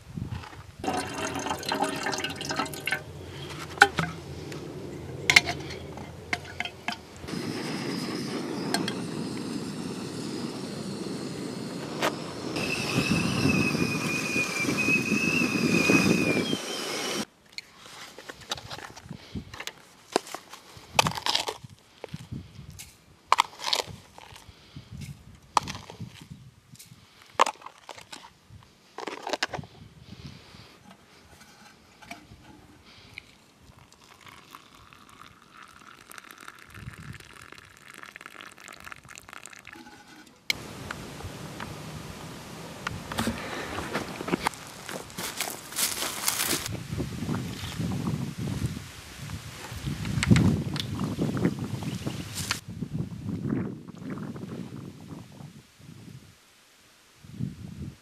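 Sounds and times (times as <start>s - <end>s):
kettle boiling: 0.8s - 17.3s, 33.2s - 44.5s
kettle whistling: 0.9s - 17.3s, 33.8s - 42.1s.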